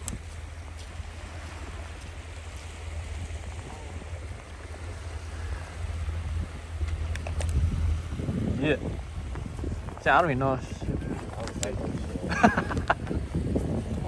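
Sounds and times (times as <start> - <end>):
wind on microphone: 0.0 - 14.0.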